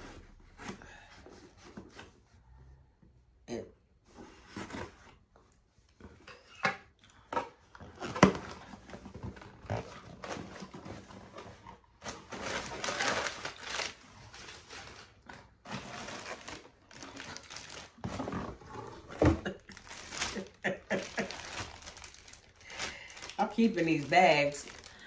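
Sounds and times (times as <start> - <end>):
plastic bags rustling and crinkling: 7.8 - 25.0.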